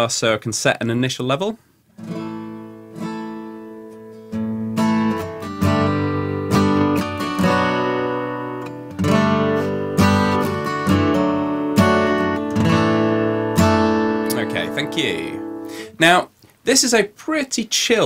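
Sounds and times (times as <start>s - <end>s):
acoustic guitar strummed: 2.0s - 16.0s.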